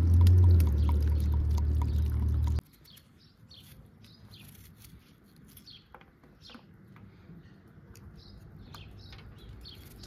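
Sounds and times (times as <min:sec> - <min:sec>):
water splashing onto onions: 0:00.0 - 0:02.6
small birds chirping faintly: 0:00.3 - 0:10.0.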